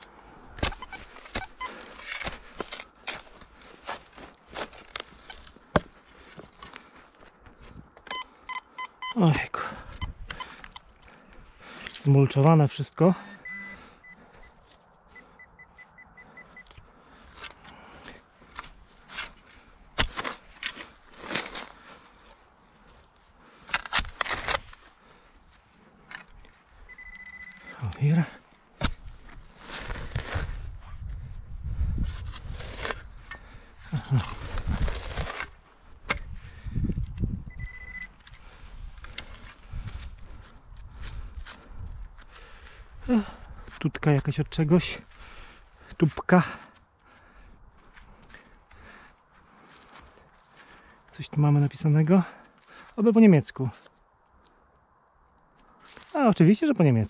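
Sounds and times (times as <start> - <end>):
spade scraping and chopping soil: 0.5 - 6.9, 18.5 - 21.9, 23.7 - 24.9, 28.8 - 31.0, 31.9 - 36.4
metal detector short high beeps: 8.1 - 9.2, 13.2 - 14.5, 15.4 - 16.7, 26.9 - 27.7, 37.5 - 38.2.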